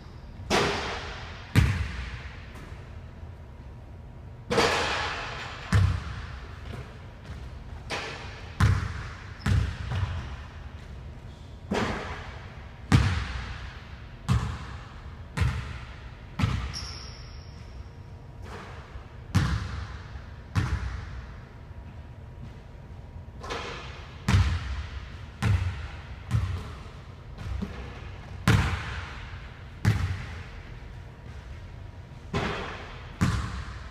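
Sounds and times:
basketball bouncing on hardwood floor: 0:01.5 - 0:02.7, 0:05.7 - 0:08.0, 0:08.6 - 0:10.2, 0:15.4 - 0:15.8, 0:19.3 - 0:19.9, 0:25.4 - 0:29.0, 0:29.8 - 0:30.4, 0:32.4 - 0:33.8.

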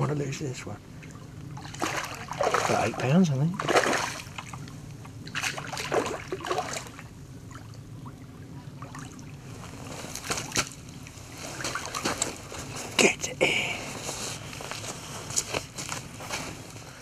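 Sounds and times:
fish splashing at water surface: 0:01.6 - 0:04.7, 0:05.3 - 0:07.6.

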